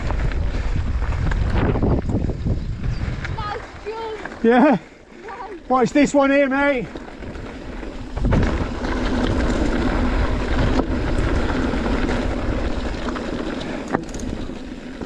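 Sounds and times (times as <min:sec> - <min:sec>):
wind rushing over microphone: 0:00.0 - 0:04.2, 0:07.2 - 0:13.4
tyres rattling over trail: 0:00.0 - 0:15.0.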